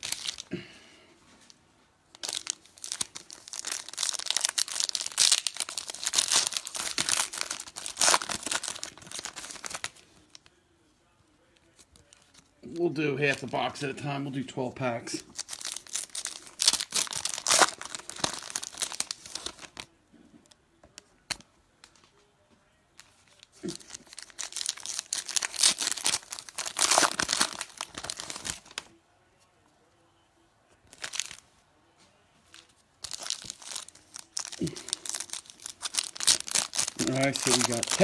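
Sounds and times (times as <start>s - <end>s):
foil card packs tearing and rustling: 0.0s - 0.5s, 2.2s - 10.3s, 15.2s - 19.9s, 23.4s - 28.9s, 30.9s - 31.4s, 33.0s - 38.0s.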